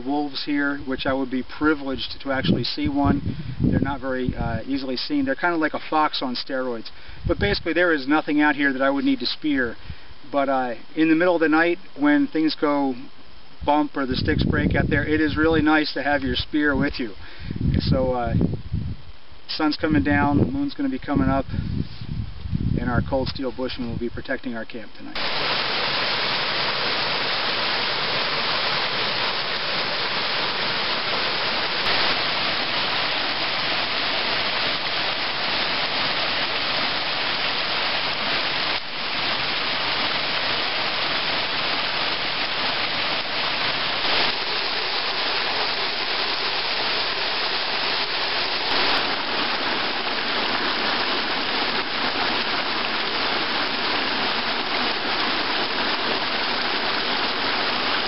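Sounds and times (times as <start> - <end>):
stream rushing over stones: 25.2 - 58.0.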